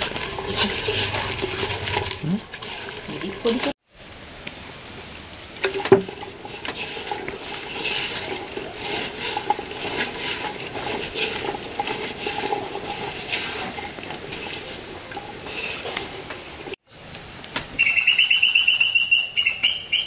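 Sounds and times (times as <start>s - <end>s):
hand mixing vegetables in clay pot: 0.0s - 3.8s, 5.4s - 16.8s.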